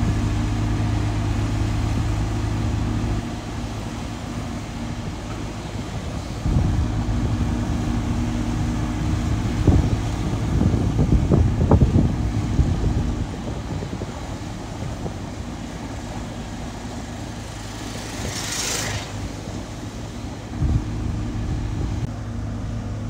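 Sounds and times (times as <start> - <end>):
heavy machine rumble: 0.0 - 23.0
road roller hum: 0.0 - 23.0.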